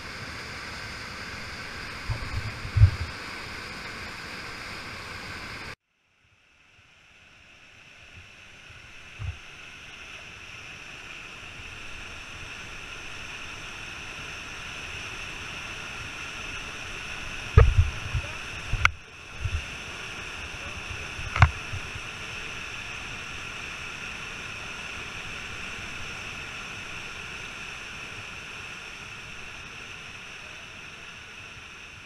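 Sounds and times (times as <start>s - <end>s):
low thumps on microphone: 2.1s - 3.2s, 17.6s - 19.6s.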